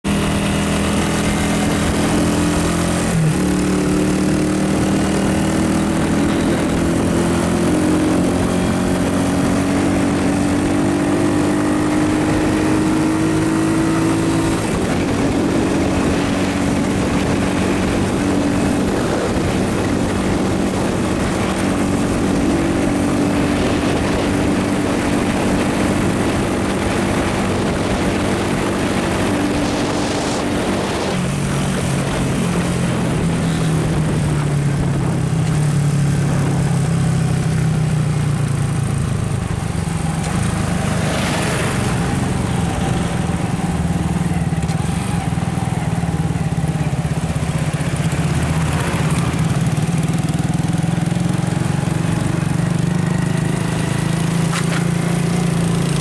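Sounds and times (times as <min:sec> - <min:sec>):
vehicle engine droning: 0:00.0 - 0:56.0
wind and road noise: 0:00.0 - 0:56.0.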